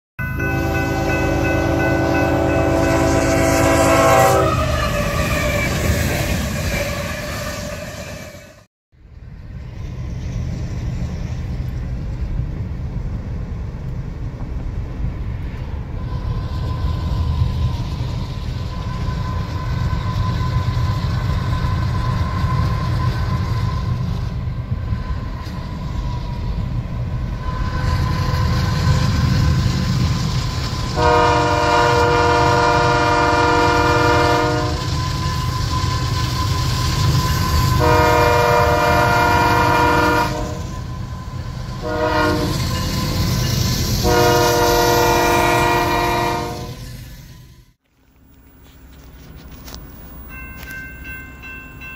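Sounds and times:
locomotive horn blasts: 0.2 - 5.8, 31.0 - 35.0, 37.7 - 40.9, 41.8 - 42.8, 44.0 - 46.9
low rumble of moving train: 0.2 - 51.9.

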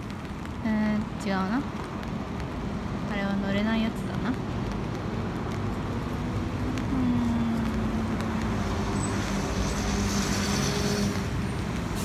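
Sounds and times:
street traffic: 0.0 - 12.0
bus engine hum: 3.6 - 12.0.

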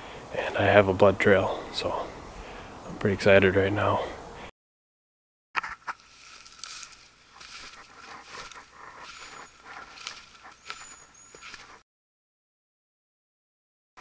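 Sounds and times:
footsteps in wet snow: 5.6 - 11.8
twigs and brush rustling: 5.6 - 11.8.

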